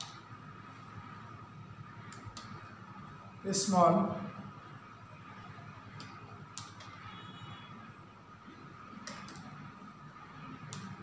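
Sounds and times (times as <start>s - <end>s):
faint background noise: 0.0s - 11.0s
keyboard keystrokes: 9.0s - 9.5s.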